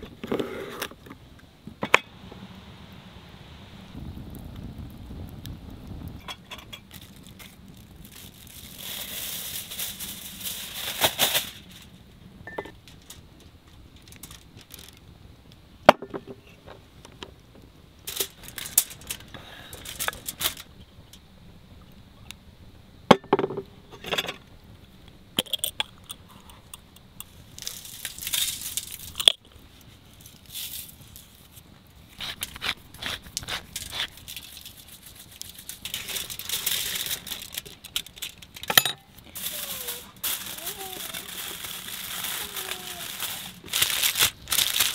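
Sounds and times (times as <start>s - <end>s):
aluminium foil crinkling: 6.2s - 12.1s, 12.8s - 15.1s, 18.0s - 20.8s, 27.2s - 44.9s.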